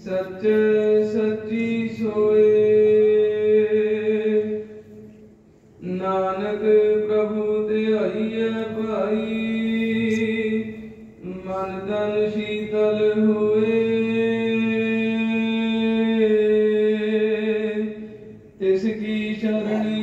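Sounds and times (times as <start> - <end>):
person chanting in long notes: 5.8 - 20.0.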